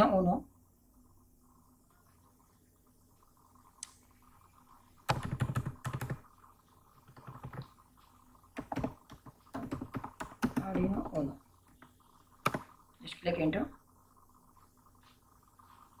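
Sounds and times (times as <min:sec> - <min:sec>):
computer keyboard typing: 0:05.0 - 0:07.8, 0:08.5 - 0:12.8.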